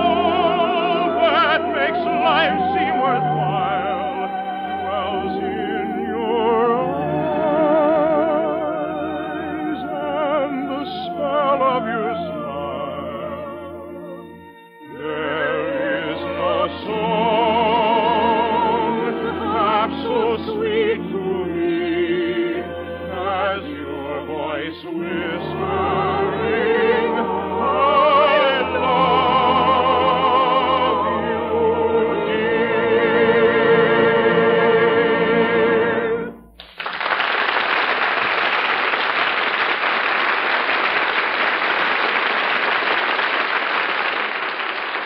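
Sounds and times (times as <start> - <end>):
soprano singing: 0.0 - 36.6
orchestra playing: 0.0 - 36.7
audience applauding: 36.6 - 45.0.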